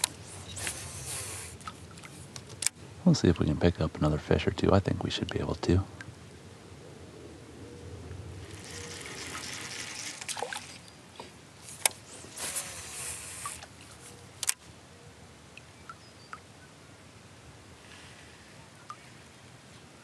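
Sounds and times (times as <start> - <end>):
paddle splashing water: 8.5 - 14.1.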